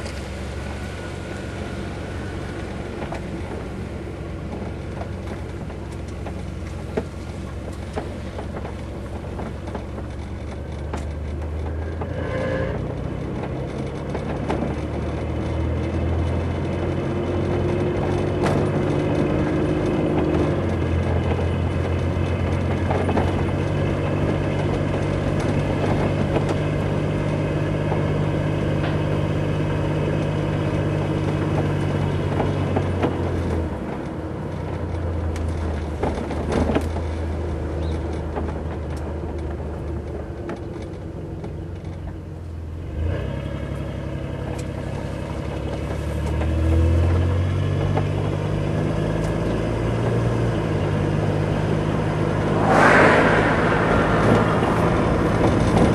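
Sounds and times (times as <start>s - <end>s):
car engine hum: 0.0s - 43.0s, 43.7s - 55.9s
road noise inside car: 0.0s - 55.9s.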